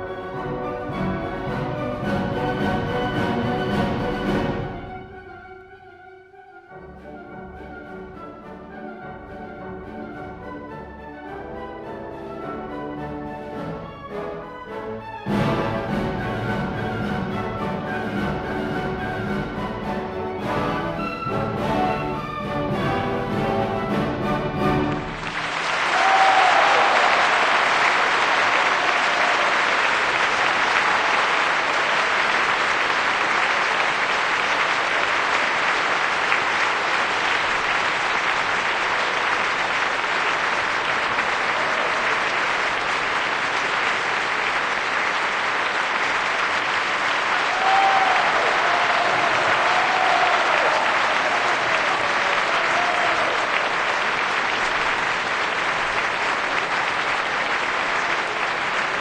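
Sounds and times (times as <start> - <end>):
audience applauding: 15.3 - 59.0
faint cheers or whistles: 25.9 - 27.8, 47.5 - 53.6.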